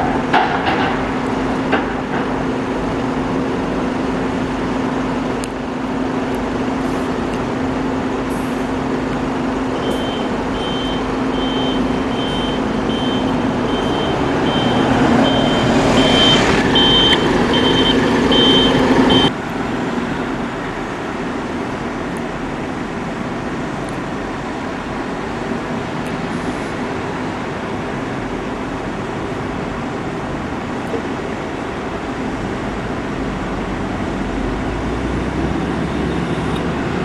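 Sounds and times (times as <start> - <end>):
bus engines humming: 0.0 - 37.0
vehicle warning beeper: 9.8 - 19.3.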